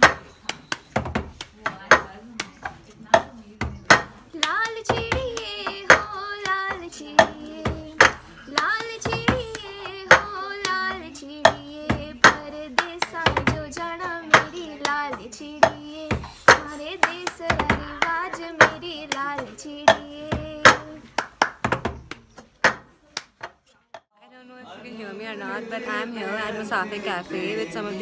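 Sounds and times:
hand claps: 0.0s - 23.6s
woman singing: 3.9s - 21.2s, 24.3s - 28.0s.

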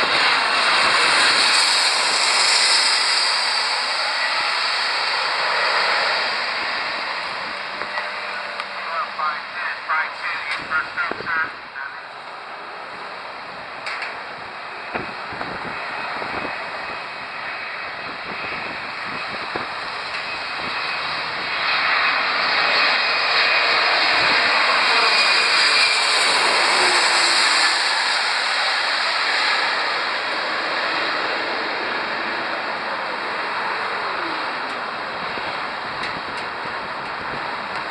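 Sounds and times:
jet airliner passing overhead: 0.0s - 37.9s.

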